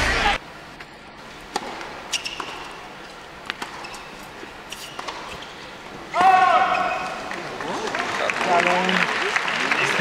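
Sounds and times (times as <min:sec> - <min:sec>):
tennis ball struck and bouncing: 0:01.5 - 0:02.8, 0:03.4 - 0:04.0, 0:04.7 - 0:05.4.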